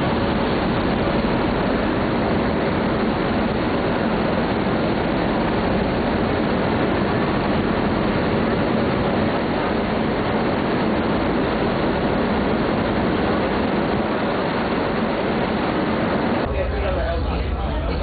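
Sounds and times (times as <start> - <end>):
churning wake water: 0.0 - 18.0.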